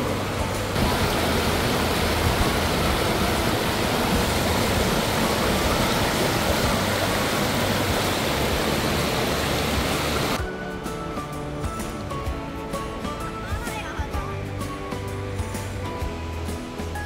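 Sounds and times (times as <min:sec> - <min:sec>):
stream rushing over rocks: 0:00.0 - 0:10.4.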